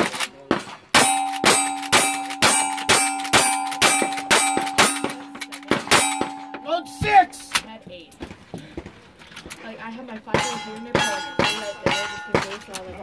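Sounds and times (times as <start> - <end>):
steel targets clanging: 1.0 - 7.7, 10.3 - 13.0.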